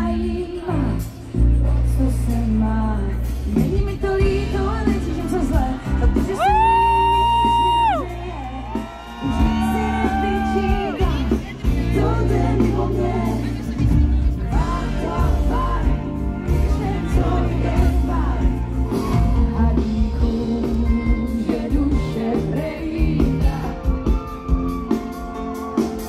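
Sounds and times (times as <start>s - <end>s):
live pop music with singer: 0.0s - 26.0s.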